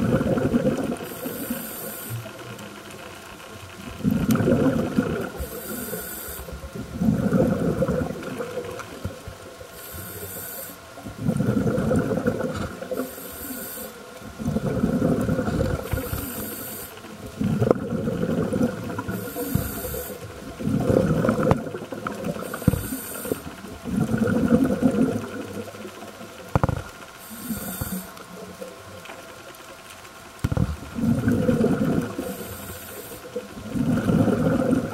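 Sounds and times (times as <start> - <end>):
rumbling exhalation bubbles: 0.0 - 1.1, 3.9 - 5.8, 6.5 - 9.2, 11.0 - 13.1, 14.2 - 16.3, 17.2 - 25.7, 30.4 - 32.4, 33.4 - 34.9
diver breathing through regulator: 1.0 - 2.3, 5.4 - 6.5, 9.8 - 11.6, 12.9 - 14.0, 14.6 - 17.0, 19.1 - 21.4, 22.3 - 23.5, 27.2 - 28.2, 32.0 - 34.7.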